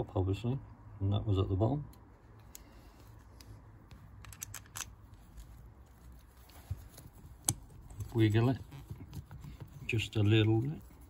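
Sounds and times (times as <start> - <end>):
small metal clicks and rattles: 4.2 - 4.9.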